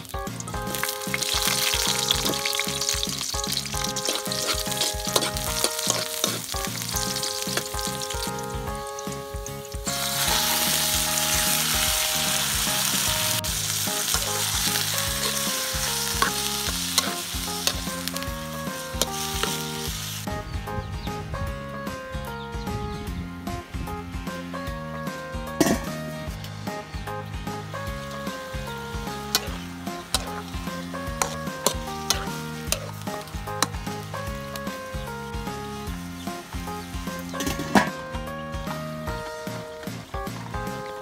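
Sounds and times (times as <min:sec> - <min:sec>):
garlic sizzling in oil: 0:00.0 - 0:20.3, 0:27.8 - 0:38.0
background music: 0:00.0 - 0:41.0.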